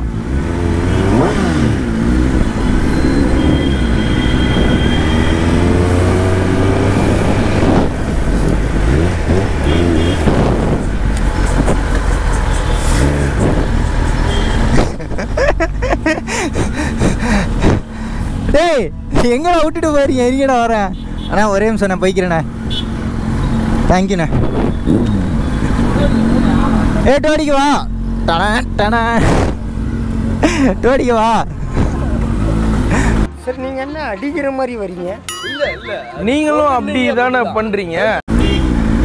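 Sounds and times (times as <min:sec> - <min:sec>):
motorcycle engine revving: 0:00.0 - 0:15.1, 0:22.6 - 0:27.1, 0:38.3 - 0:39.0
wind and road noise: 0:00.0 - 0:35.3, 0:36.2 - 0:39.0.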